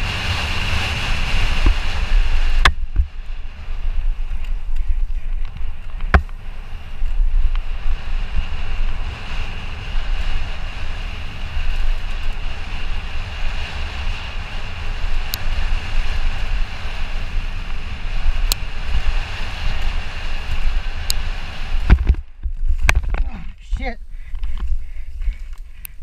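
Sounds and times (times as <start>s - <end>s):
tyres rumbling on dirt trail: 0.0s - 26.0s
wind buffeting microphone: 0.0s - 26.0s
sharp bike clicks: 19.7s - 26.0s.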